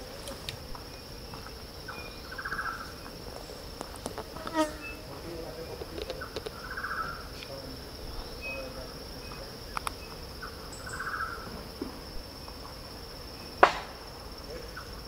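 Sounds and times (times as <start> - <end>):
insects droning: 0.0 - 15.0
sharp knock: 13.6 - 14.0.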